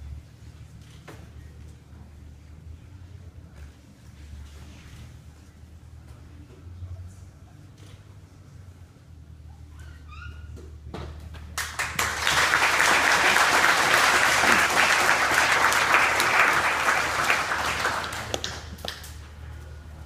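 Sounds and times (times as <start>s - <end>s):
audience applauding: 11.6s - 19.2s.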